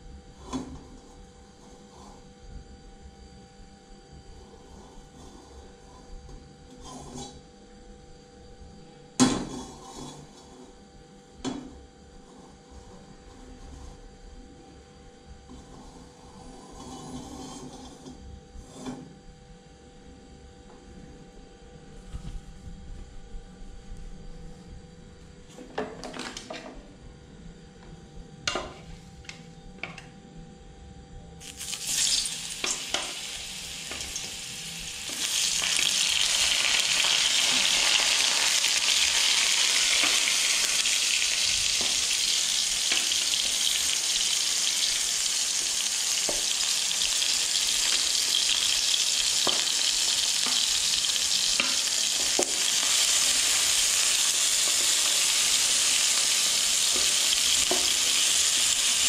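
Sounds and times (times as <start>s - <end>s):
food sizzling in oil: 31.4s - 59.0s.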